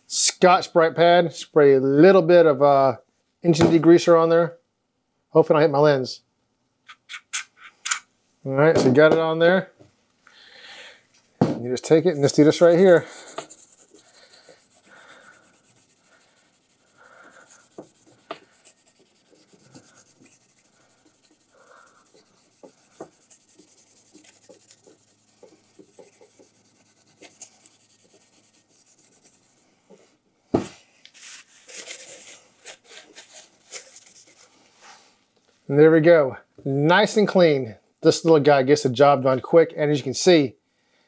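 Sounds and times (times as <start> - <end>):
pad scrubbing metal: 12.0 - 29.7
paper towel wiping: 12.0 - 29.8.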